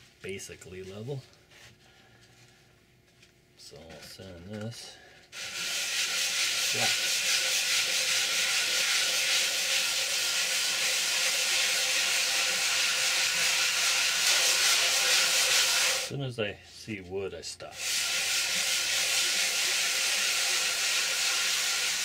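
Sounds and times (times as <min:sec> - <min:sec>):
sandpaper rubbing on wood: 0:05.4 - 0:16.1, 0:17.8 - 0:22.0.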